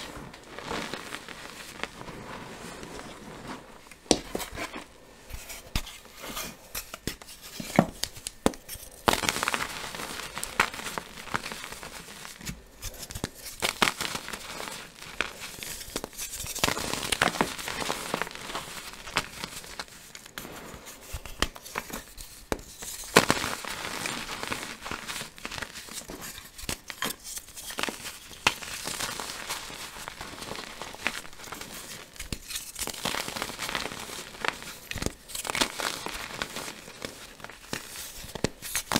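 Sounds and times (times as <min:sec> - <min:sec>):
soft powdery rustle: 0:00.0 - 0:05.6.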